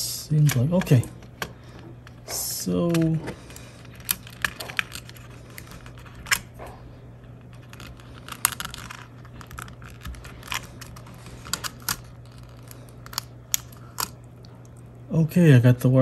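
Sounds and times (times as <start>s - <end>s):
rustling of wires: 0.0s - 15.0s.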